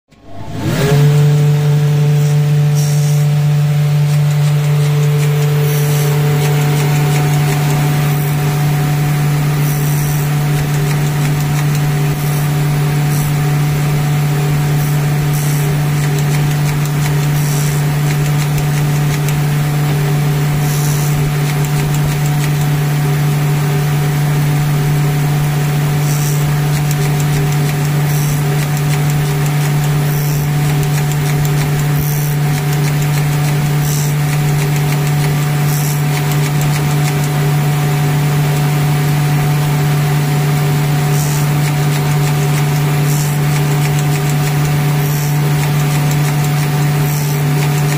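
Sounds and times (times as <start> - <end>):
machine motor hum: 0.1 - 47.9.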